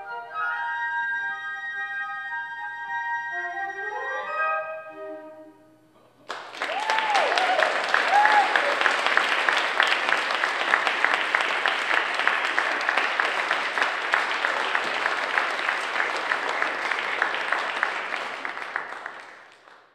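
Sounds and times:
audience applauding: 0:06.2 - 0:19.9.

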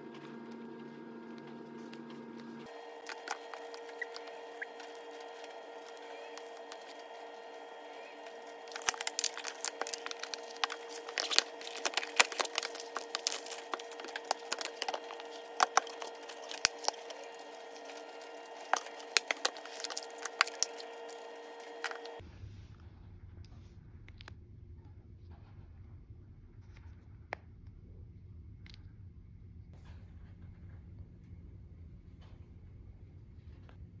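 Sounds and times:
steady hum: 0:00.0 - 0:22.4.

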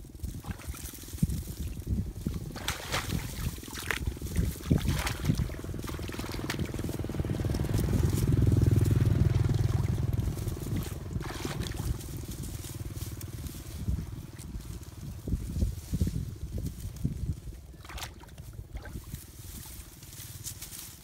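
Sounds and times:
feet sloshing through muddy water: 0:00.0 - 0:16.2, 0:16.9 - 0:21.0
low motor hum: 0:00.0 - 0:21.0
rustling brush: 0:00.0 - 0:21.0
short splashes and knocks: 0:00.2 - 0:00.9, 0:02.2 - 0:08.3, 0:09.4 - 0:12.3, 0:17.8 - 0:19.7.

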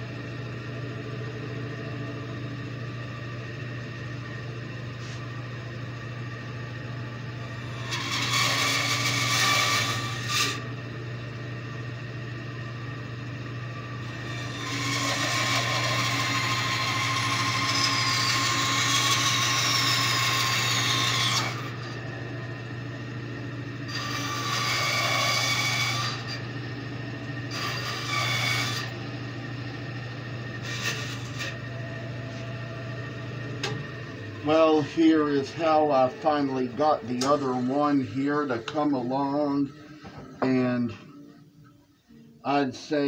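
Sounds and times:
bandsaw motor hum: 0:00.0 - 0:41.2
bandsaw rasping through wood: 0:07.7 - 0:10.6, 0:14.2 - 0:21.9, 0:23.9 - 0:26.4, 0:27.5 - 0:29.0, 0:30.6 - 0:31.6
high whine falling in pitch: 0:31.6 - 0:43.0.

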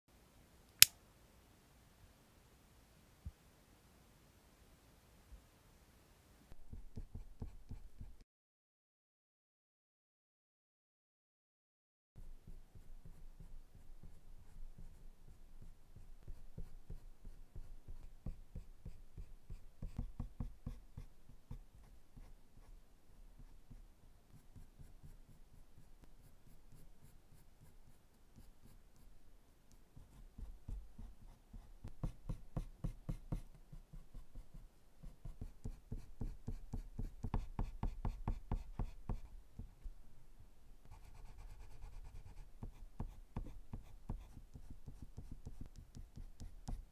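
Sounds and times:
colored pencil scratching on paper: 0:06.5 - 0:08.2, 0:12.2 - 0:22.8, 0:23.4 - 0:29.1, 0:30.0 - 0:39.7, 0:40.8 - 0:46.9.

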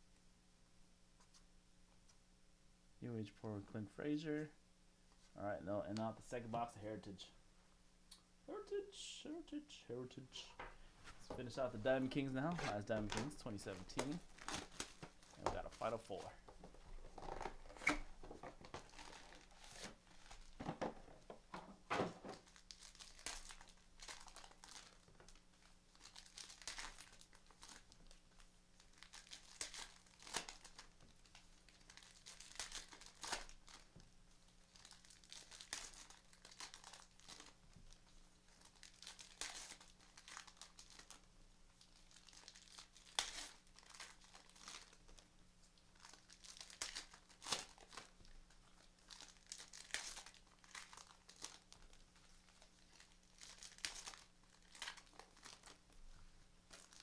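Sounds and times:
cards rustling: 0:11.2 - 0:25.0
plastic wrappers tearing and crinkling: 0:11.4 - 0:16.3, 0:16.9 - 0:20.9, 0:22.2 - 0:56.0, 0:56.6 - 0:57.0.

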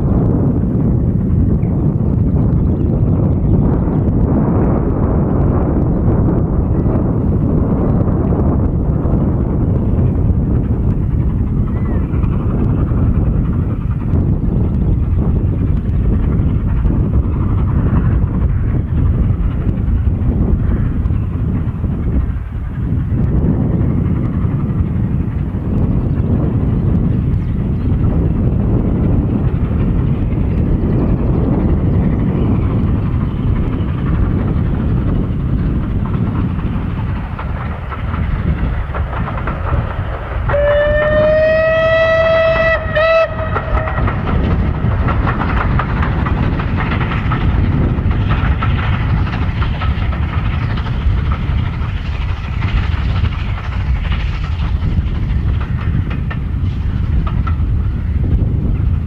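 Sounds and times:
steam locomotive exhaust rumble: 0:00.0 - 0:59.0
steam locomotive whistle: 0:40.5 - 0:44.3.

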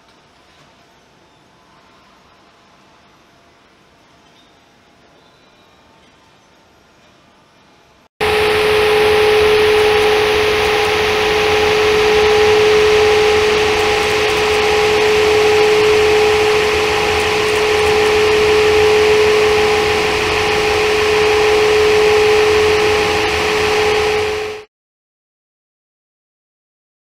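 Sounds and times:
droning hum and hiss: 0:07.0 - 0:24.7
mid-pitched tone: 0:08.2 - 0:24.7
pulsing high tone: 0:08.2 - 0:24.7.

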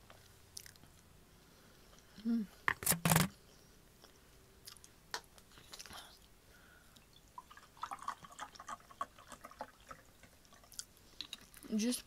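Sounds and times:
water pouring into a mug: 0:07.4 - 0:10.8.

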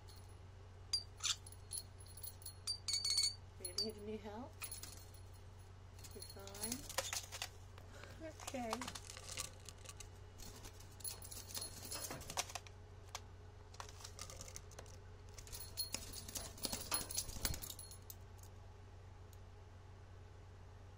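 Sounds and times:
steady low hum: 0:00.0 - 0:20.9
starling clicking and rattling: 0:04.6 - 0:05.4, 0:06.0 - 0:07.6, 0:08.3 - 0:12.7, 0:13.7 - 0:18.2.

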